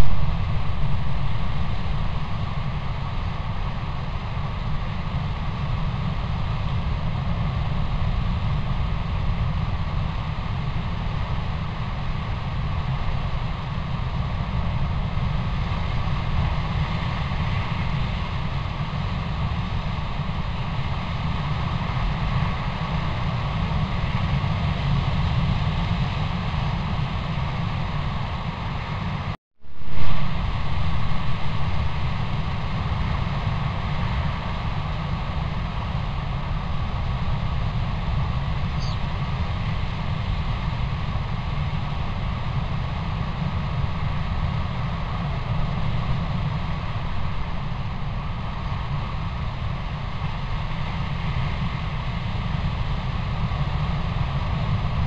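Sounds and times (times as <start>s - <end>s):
sudden loud sound: 0.0s - 2.7s
microphone hiss and rumble: 0.0s - 55.0s.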